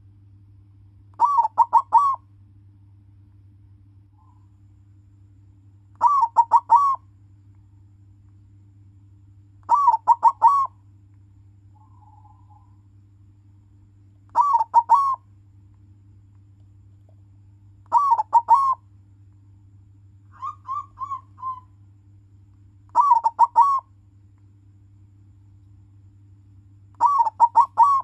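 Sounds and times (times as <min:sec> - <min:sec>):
faint low hum: 0:00.0 - 0:28.0
dove cooing: 0:01.2 - 0:02.2, 0:06.0 - 0:07.1, 0:09.7 - 0:10.8, 0:14.3 - 0:15.2, 0:17.9 - 0:18.8, 0:20.3 - 0:21.8, 0:22.9 - 0:23.9, 0:27.0 - 0:28.0.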